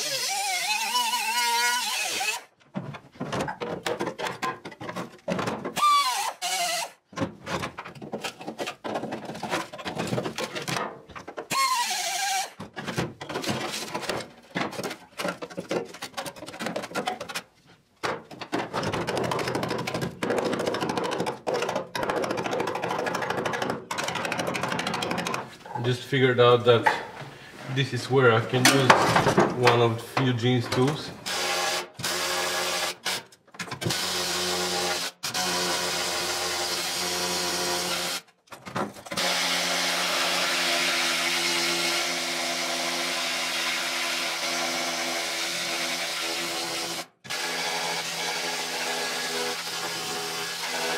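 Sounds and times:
pneumatic cut-off tool cutting steel: 0.0 - 2.5, 5.8 - 7.0, 11.5 - 12.6
rough scraping noise: 25.4 - 31.1.

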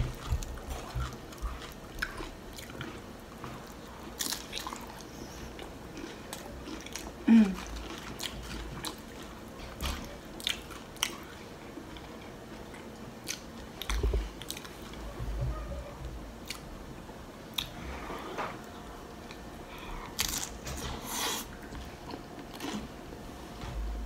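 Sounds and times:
person chewing crunchy chips: 0.0 - 9.8, 19.2 - 22.9.

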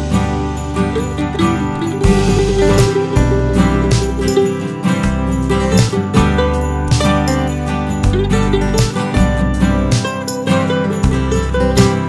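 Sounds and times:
acoustic guitar music with beat: 0.0 - 12.0.

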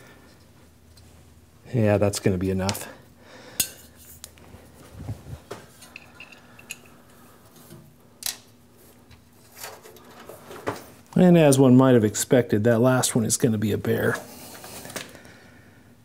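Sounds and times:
faint steady hum: 0.0 - 16.0
metallic clinks of nuts and tools: 5.8 - 7.0.

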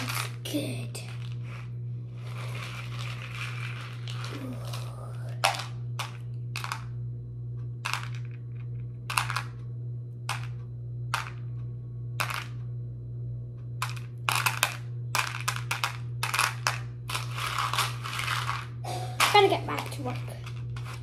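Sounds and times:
steady low hum: 0.0 - 21.0
seeds clicking against a bowl: 13.8 - 21.0.

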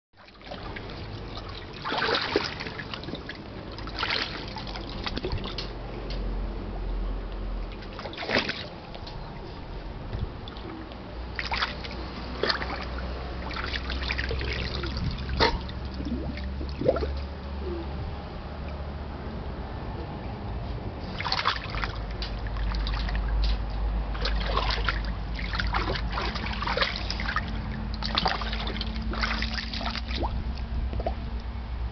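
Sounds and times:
pool water splashing: 0.2 - 5.6, 7.7 - 9.0, 10.4 - 17.4, 21.0 - 23.3, 24.0 - 31.2.

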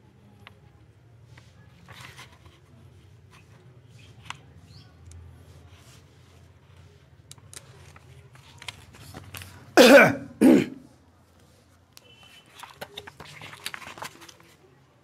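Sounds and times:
man clearing throat and coughing: 9.8 - 10.9.

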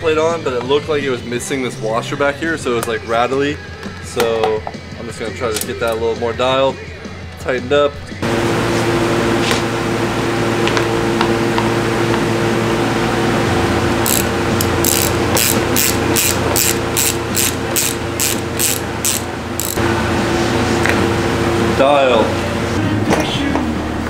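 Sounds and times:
steady hum: 8.2 - 24.0
ratchet wrench clicking: 14.0 - 19.8.

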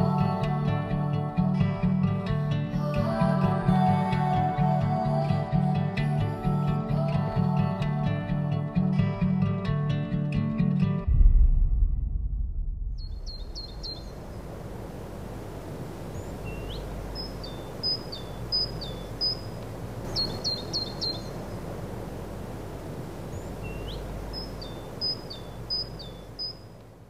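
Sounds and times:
low outdoor rumble: 10.8 - 27.0
small bird calling: 13.0 - 14.5, 15.9 - 21.8, 23.2 - 26.8.

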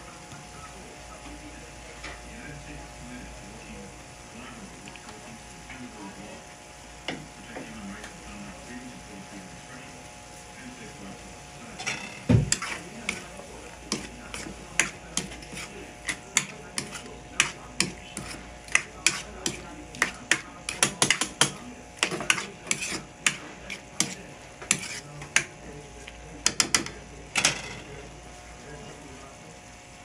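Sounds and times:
spatula scraping and knocking pan: 11.8 - 25.7, 26.4 - 27.9.

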